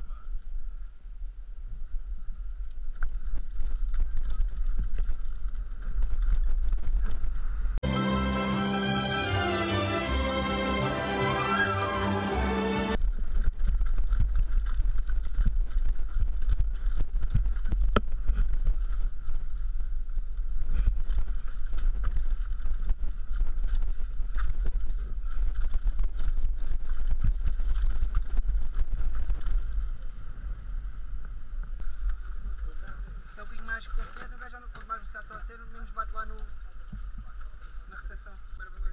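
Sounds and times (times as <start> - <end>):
bike rattling and knocking: 2.8 - 7.5, 13.0 - 30.2.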